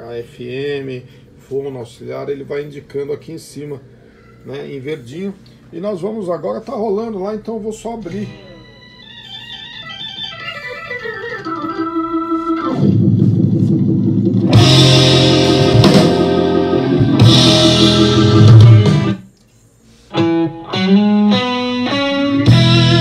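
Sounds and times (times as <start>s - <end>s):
music from a stereo receiver: 8.3s - 19.2s, 20.1s - 23.0s.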